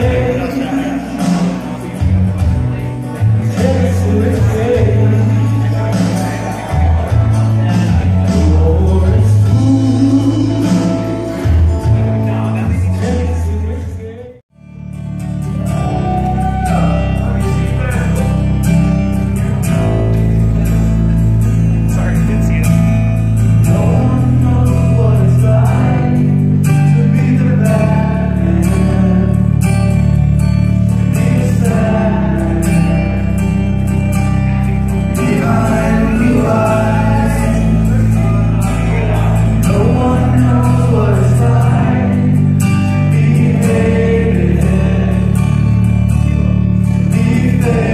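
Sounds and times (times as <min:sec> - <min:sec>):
man singing into microphone: 0:00.0 - 0:02.1, 0:03.0 - 0:14.4, 0:23.5 - 0:30.0, 0:30.9 - 0:33.7, 0:35.1 - 0:47.9
backing track with bass line: 0:00.0 - 0:47.9.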